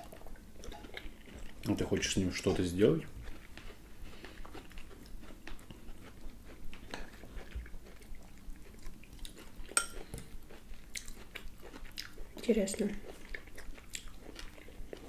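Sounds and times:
chewing and biting steak: 0:03.1 - 0:12.4, 0:13.0 - 0:15.0.

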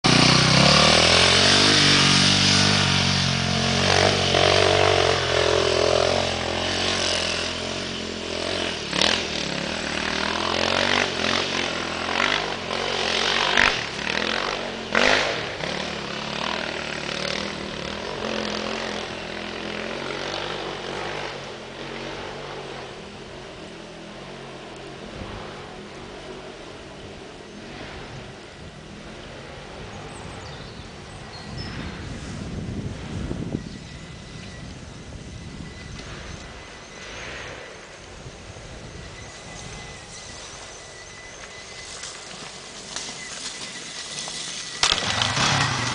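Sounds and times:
dirt bike engine revving: 0:00.0 - 0:27.0, 0:35.2 - 0:45.9
sharp cracks: 0:44.8 - 0:45.9.

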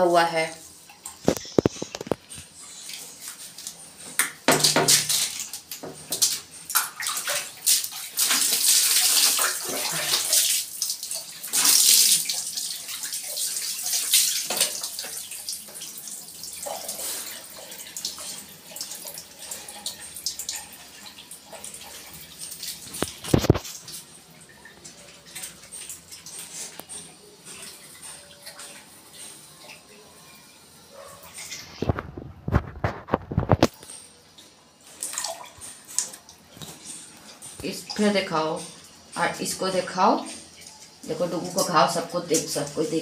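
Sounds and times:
water splashing and pouring: 0:01.0 - 0:29.3.

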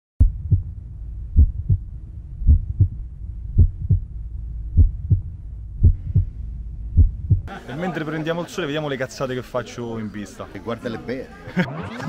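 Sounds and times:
heartbeat thumps: 0:00.2 - 0:07.5
faint low hum: 0:00.2 - 0:07.6.

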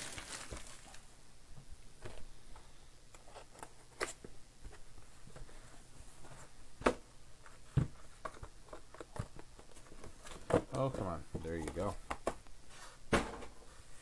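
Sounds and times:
cardboard tapping and rustling: 0:06.2 - 0:12.4.

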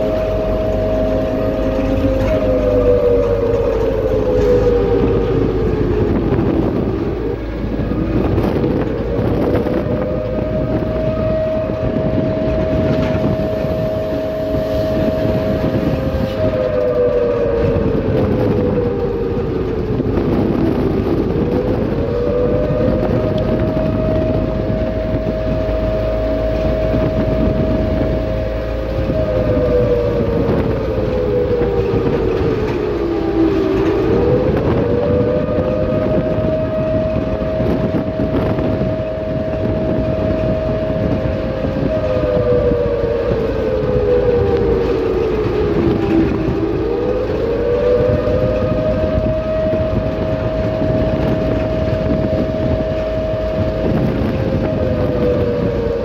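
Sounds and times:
engine whine rising and sinking: 0:00.0 - 0:56.0
vehicle low rumble: 0:00.0 - 0:56.0.

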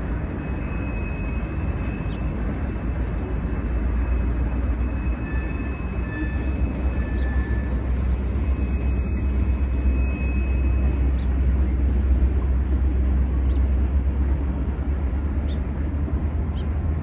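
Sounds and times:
freight train rumbling past: 0:00.0 - 0:17.0
faint high-pitched squeals: 0:03.7 - 0:11.9.

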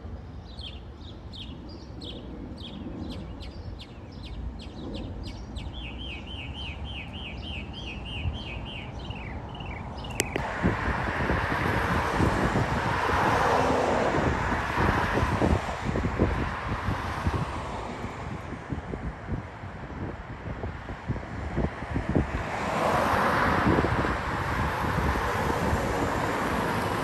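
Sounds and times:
jet airliner approaching: 0:00.0 - 0:07.9, 0:08.8 - 0:27.0
wind buffeting microphone: 0:00.0 - 0:27.0
songbird singing: 0:00.2 - 0:10.4.

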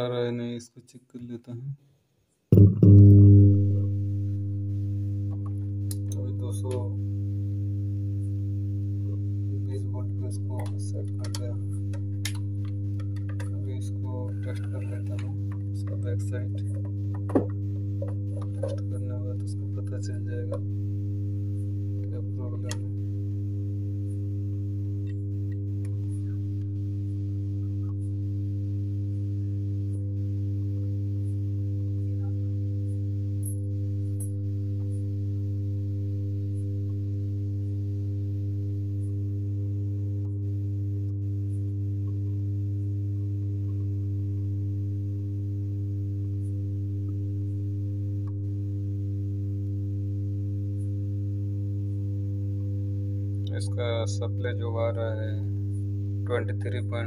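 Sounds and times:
amplifier mains hum: 0:02.5 - 0:57.0.

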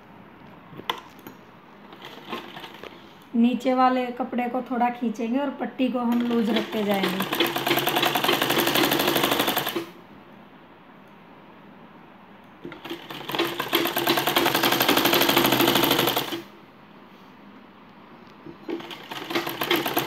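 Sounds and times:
sewing machine stitching: 0:01.9 - 0:03.0, 0:06.1 - 0:09.9, 0:12.6 - 0:16.5, 0:18.6 - 0:20.0.

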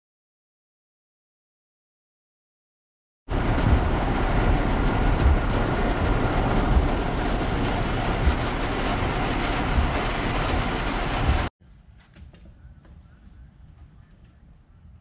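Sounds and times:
heavy rain on vehicle roof: 0:03.3 - 0:11.5
low rumble: 0:03.3 - 0:11.5.

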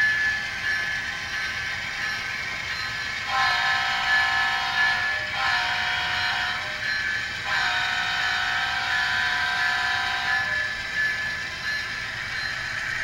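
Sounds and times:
train running rushing noise: 0:00.0 - 0:13.0
model train horn blasts: 0:03.2 - 0:10.8.

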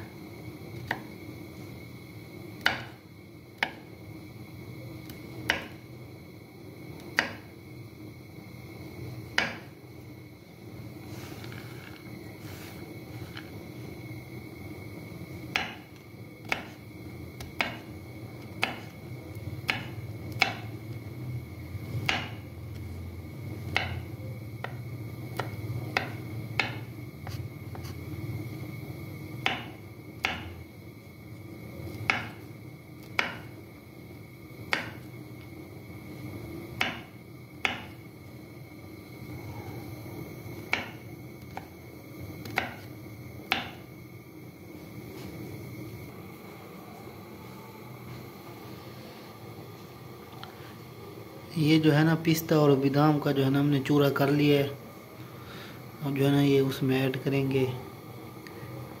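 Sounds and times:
steady hum: 0:00.0 - 0:59.0
knife chopping on wooden board: 0:02.6 - 0:03.0, 0:05.5 - 0:05.8, 0:07.2 - 0:07.4, 0:09.4 - 0:09.7, 0:15.5 - 0:16.8, 0:17.4 - 0:17.9, 0:18.6 - 0:18.9, 0:19.6 - 0:20.7, 0:22.0 - 0:22.4, 0:23.8 - 0:24.0, 0:25.4 - 0:27.9, 0:29.4 - 0:30.5, 0:32.0 - 0:32.4, 0:33.2 - 0:33.5, 0:34.7 - 0:35.0, 0:36.8 - 0:37.9, 0:40.7 - 0:41.0, 0:42.4 - 0:42.9, 0:43.5 - 0:43.8.

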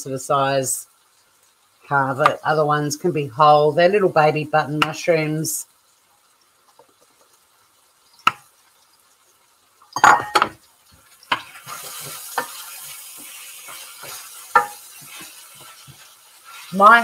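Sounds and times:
chicken sizzling in a frying pan: 0:00.0 - 0:17.0
spoon knocking against pan: 0:08.2 - 0:08.5, 0:14.5 - 0:14.8
utensil clattering against pan: 0:14.5 - 0:15.3.

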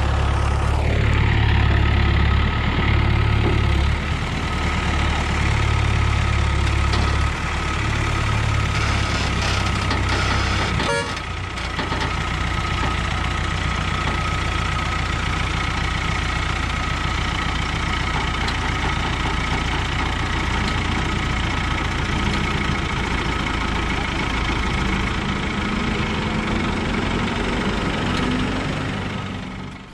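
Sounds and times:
heavy diesel engine running: 0:00.0 - 0:29.9.

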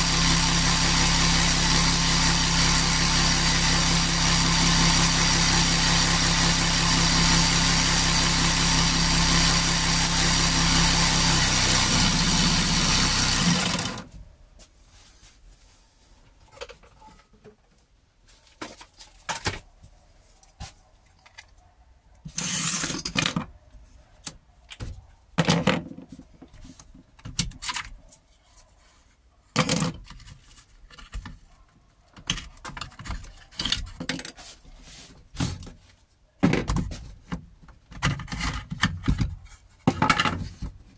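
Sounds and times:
reciprocating saw cutting: 0:00.0 - 0:14.1, 0:22.3 - 0:23.0
knocks and rustles of tools handled: 0:16.2 - 0:19.8, 0:22.3 - 0:23.5, 0:24.3 - 0:28.3, 0:29.6 - 0:31.5, 0:32.1 - 0:40.9.

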